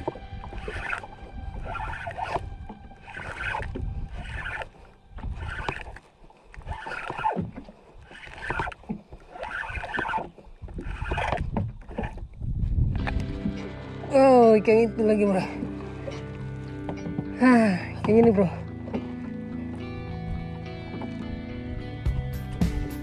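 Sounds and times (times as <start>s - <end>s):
low wind-like rumble: 0.0s - 6.9s, 10.4s - 22.0s
fishing reel swishing: 0.0s - 12.2s.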